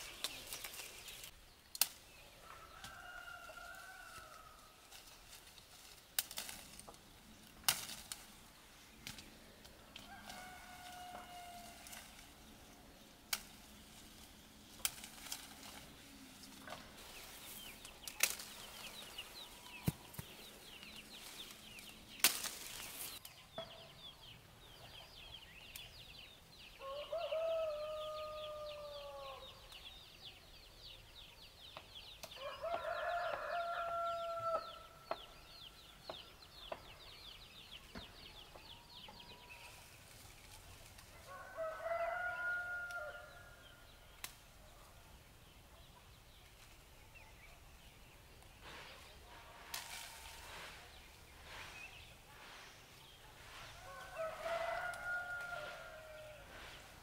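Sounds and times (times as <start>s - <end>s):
rooster crowing: 2.4s - 4.7s, 10.0s - 11.9s, 26.8s - 29.4s, 32.4s - 34.9s, 41.3s - 43.6s, 53.8s - 56.5s.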